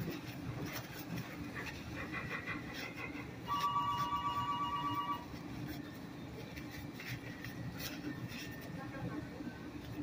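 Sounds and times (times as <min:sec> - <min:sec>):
steady high-pitched tone: 0:03.5 - 0:05.3.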